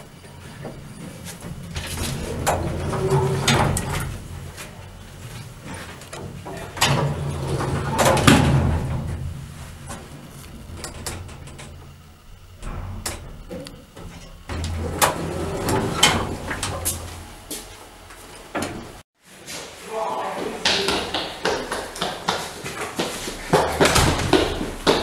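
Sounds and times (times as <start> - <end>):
elevator doors sliding: 0.0 - 19.0.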